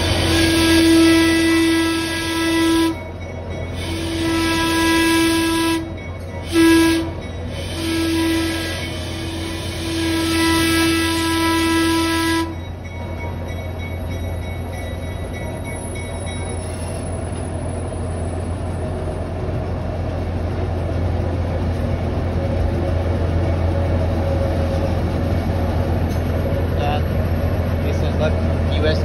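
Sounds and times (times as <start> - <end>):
locomotive horn blast: 0.0 - 3.1, 3.8 - 12.6
train rumbling: 0.0 - 29.0.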